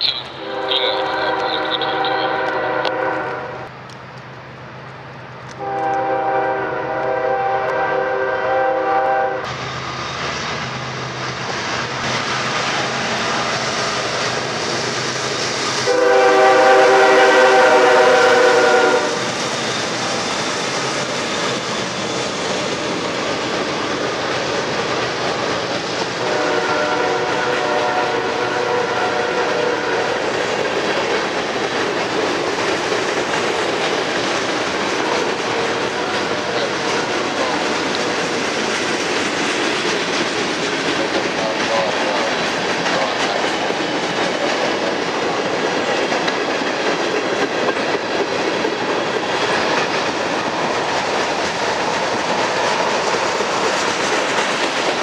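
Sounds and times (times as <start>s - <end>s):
train air horn: 0.0s - 3.7s, 5.6s - 9.5s, 15.8s - 19.3s, 26.2s - 30.2s, 35.7s - 37.8s
train cars clattering over rails: 9.6s - 55.0s.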